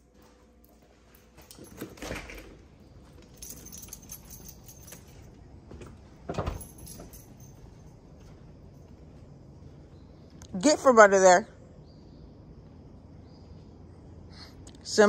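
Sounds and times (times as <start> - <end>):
metallic jingling and clicking: 0.6 - 9.1.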